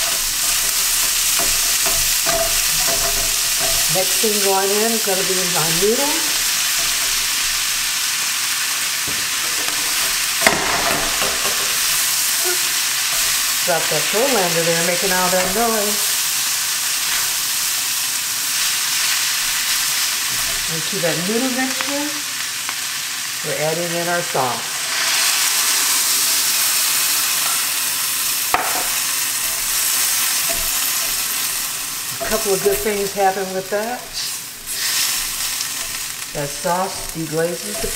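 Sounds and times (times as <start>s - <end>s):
spatula stirring in wok: 0.0s - 8.2s, 28.8s - 37.9s
food sizzling in a wok: 0.0s - 37.9s.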